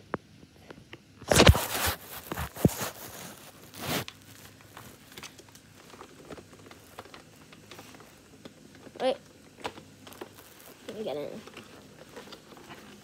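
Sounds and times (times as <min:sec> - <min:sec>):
handling noise on microphone: 0:01.2 - 0:08.2
loud rustle: 0:01.3 - 0:05.2.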